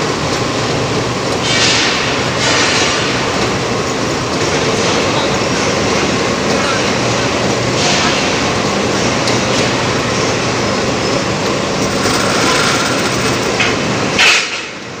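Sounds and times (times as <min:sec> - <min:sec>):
factory machinery din: 0:07.1 - 0:15.0.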